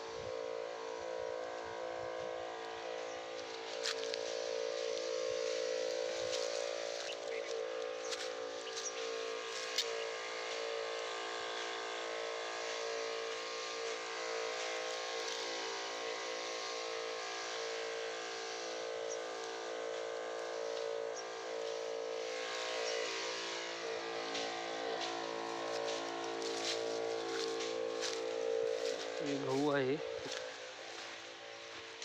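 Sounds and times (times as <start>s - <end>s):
small motor humming: 0.0s - 32.0s.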